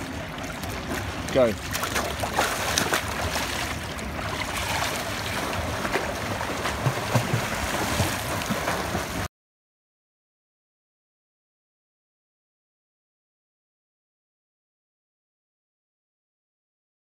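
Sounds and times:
swimming stroke splashes: 0:00.0 - 0:09.3
water splashing and churning: 0:00.0 - 0:09.3.

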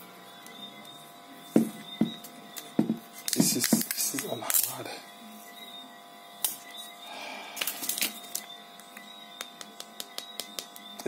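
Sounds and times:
background hum: 0:00.0 - 0:11.0.

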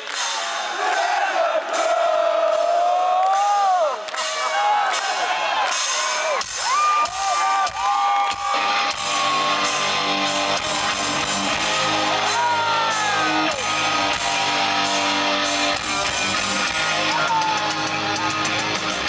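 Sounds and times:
drums: 0:00.0 - 0:19.0
bass guitar: 0:08.3 - 0:19.0
electric guitar riff: 0:08.3 - 0:19.0.

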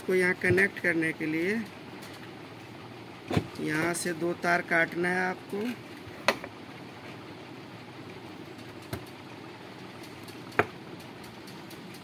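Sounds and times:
steady background hum: 0:00.0 - 0:12.0
sharp clicks from wires: 0:01.3 - 0:02.3, 0:08.4 - 0:12.0.

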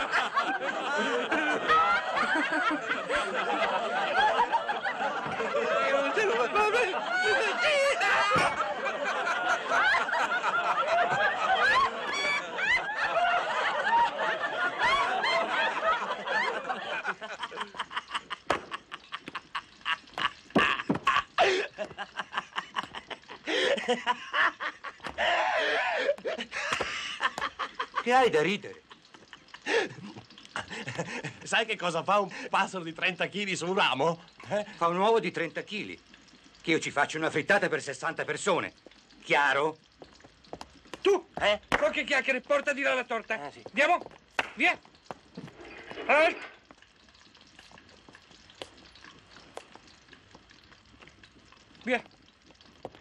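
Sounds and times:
hearty human laughter: 0:00.0 - 0:28.1.

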